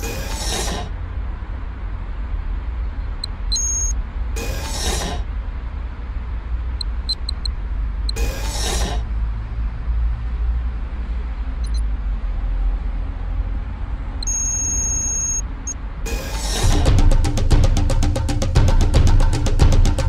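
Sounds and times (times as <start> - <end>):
whoosh: 0.0 - 1.0, 4.4 - 5.3, 8.2 - 9.2, 16.1 - 20.0
electronic bleeps: 3.2 - 4.6, 6.8 - 8.5, 11.6 - 11.8, 14.2 - 15.7
high chirping data tone: 3.2 - 4.7, 6.8 - 8.5, 11.6 - 11.8, 14.2 - 15.8
steady deep hum: 16.1 - 20.0.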